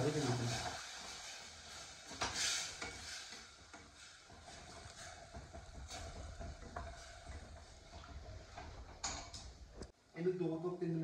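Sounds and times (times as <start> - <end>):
vegetables sizzling in a pan: 0.0 - 8.5
spoon stirring and scraping: 0.0 - 9.4.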